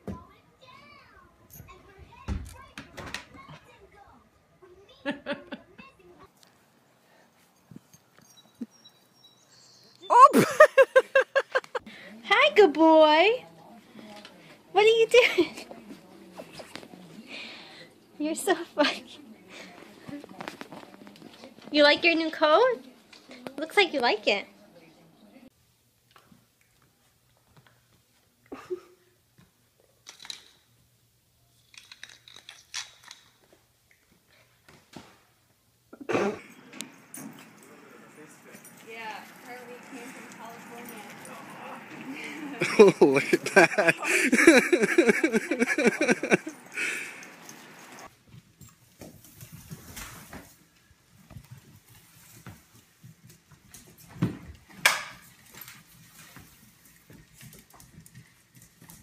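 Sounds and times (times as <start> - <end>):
puppy claws clicking on tiles: 31.6 - 33.4.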